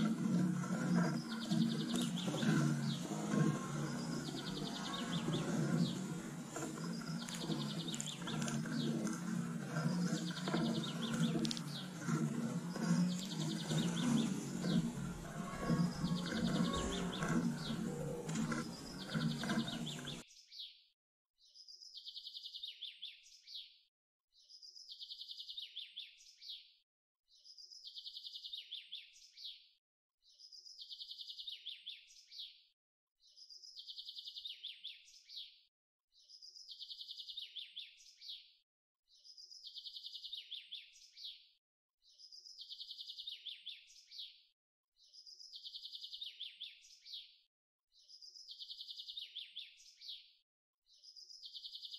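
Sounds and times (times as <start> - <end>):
loud full sound cutting off: 0.0 - 20.2
sparrow chirping: 0.0 - 20.2.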